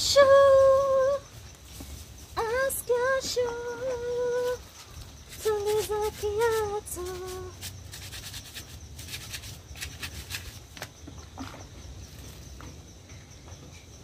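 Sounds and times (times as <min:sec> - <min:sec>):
woman singing: 0:00.0 - 0:01.3, 0:02.4 - 0:04.8, 0:05.4 - 0:07.7
scrubbing shoes by hand: 0:05.3 - 0:10.9.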